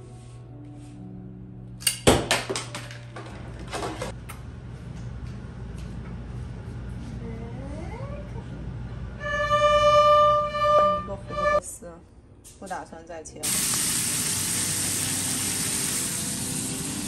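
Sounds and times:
soft background music: 0:00.0 - 0:02.1, 0:09.2 - 0:11.6
low room hum: 0:02.6 - 0:13.4.

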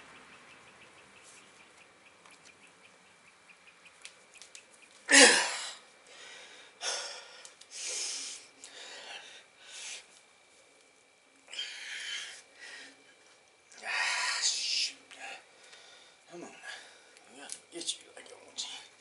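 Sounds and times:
man breathing heavily: 0:05.1 - 0:10.2, 0:11.5 - 0:13.1, 0:13.8 - 0:17.2.

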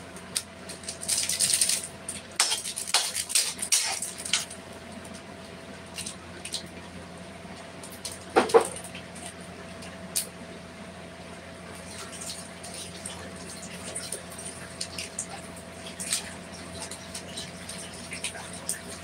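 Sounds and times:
plastic sachet crinkling: 0:00.3 - 0:04.5.

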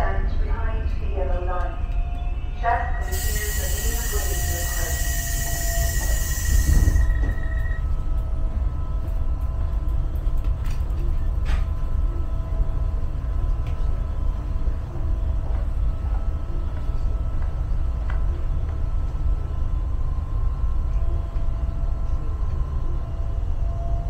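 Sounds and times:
train low rumble and hum: 0:00.0 - 0:24.0
thin steady whines: 0:00.3 - 0:24.0
hiss: 0:03.1 - 0:07.2.

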